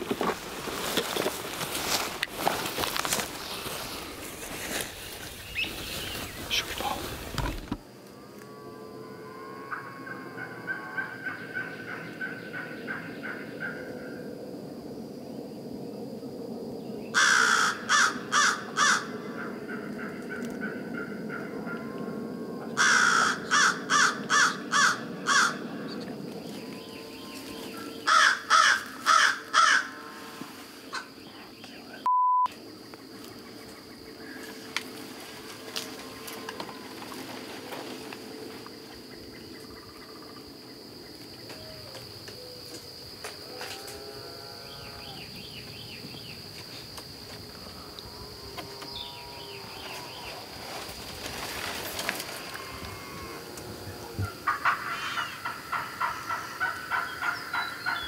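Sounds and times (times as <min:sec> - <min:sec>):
songbird chirping: 0:00.8 - 0:07.8, 0:09.4 - 0:14.4, 0:24.6 - 0:29.6, 0:30.5 - 0:36.8, 0:43.9 - 0:51.8, 0:53.6 - 0:58.0
crow cawing: 0:17.2 - 0:20.8, 0:22.8 - 0:25.6, 0:28.1 - 0:30.0, 0:54.4 - 0:58.0.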